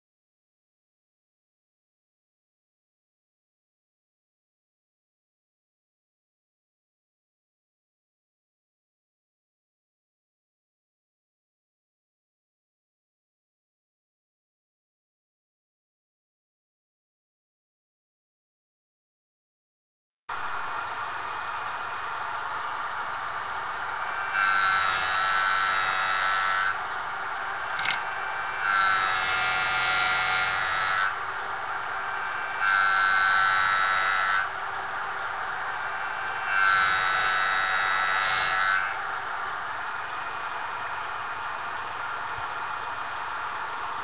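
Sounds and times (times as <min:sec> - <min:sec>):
electric sharpener motor whining: 0:23.0 - 0:41.2
sharp click: 0:27.8 - 0:28.1.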